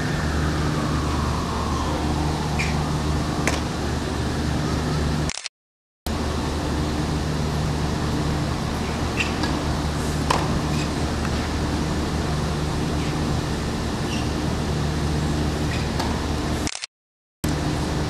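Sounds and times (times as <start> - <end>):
low hum and hiss: 0.0 - 5.3.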